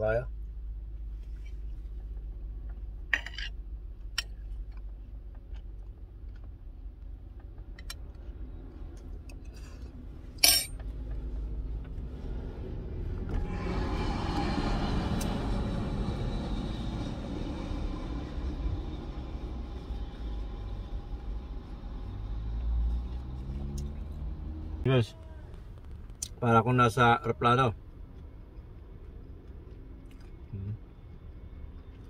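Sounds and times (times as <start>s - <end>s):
vehicle rumble inside car: 0.0s - 32.0s
vehicle engine passing close: 10.8s - 25.0s.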